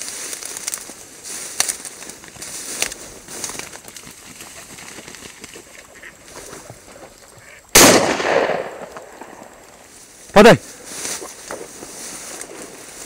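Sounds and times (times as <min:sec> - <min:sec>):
shotgun shot with echo: 0:07.8 - 0:09.3.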